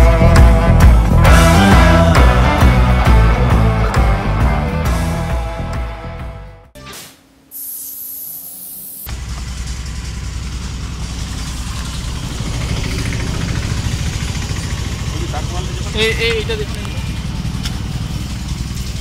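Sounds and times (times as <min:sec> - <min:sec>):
background music: 0:00.0 - 0:07.1
high hiss: 0:07.0 - 0:09.1
engine idling: 0:09.1 - 0:19.0.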